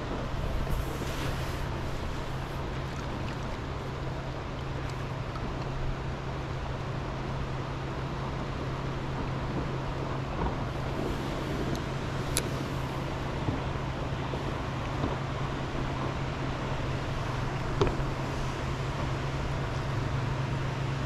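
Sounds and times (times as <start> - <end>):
rushing hiss: 0.0 - 2.9, 10.6 - 14.8
boat motors droning: 0.0 - 21.0.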